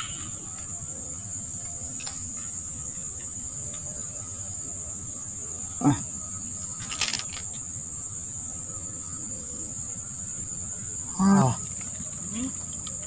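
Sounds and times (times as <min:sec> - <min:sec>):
insects droning: 0:00.0 - 0:13.0
rattle of clicks: 0:06.8 - 0:07.6.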